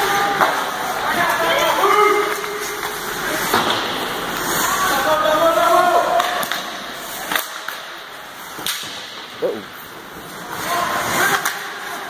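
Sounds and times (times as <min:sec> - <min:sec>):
hockey sticks knocking puck: 0:00.1 - 0:04.6, 0:06.1 - 0:09.3, 0:10.2 - 0:12.0.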